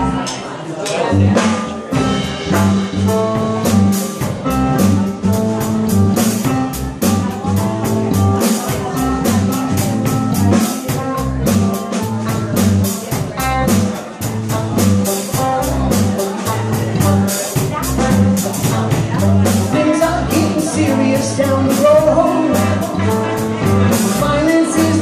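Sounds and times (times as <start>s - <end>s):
electric bass: 0.0s - 0.4s, 1.0s - 25.0s
drum kit with cymbal strokes: 0.0s - 25.0s
electric guitar: 0.0s - 25.0s.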